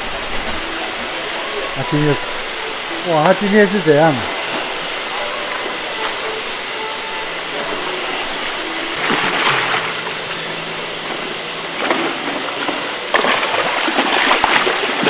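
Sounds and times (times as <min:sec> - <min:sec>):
water hissing: 0:00.0 - 0:15.0
fish thrashing and splashing: 0:09.0 - 0:15.0.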